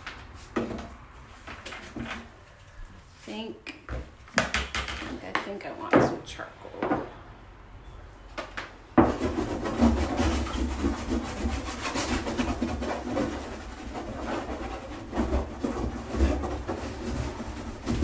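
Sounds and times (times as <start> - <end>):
charcoal scribbling on wood: 9.0 - 18.0.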